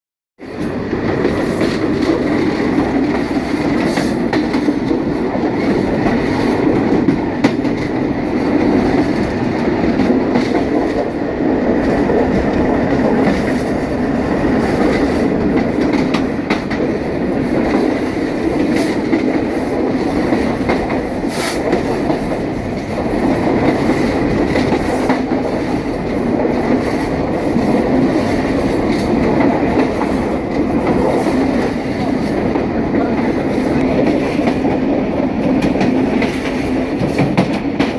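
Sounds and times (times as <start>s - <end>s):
train wheels rumbling on rails: 0.4s - 37.9s.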